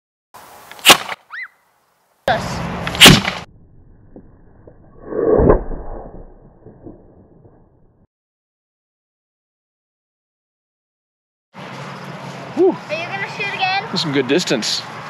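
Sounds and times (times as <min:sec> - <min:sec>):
potato cannon bangs: 0:03.0 - 0:03.4.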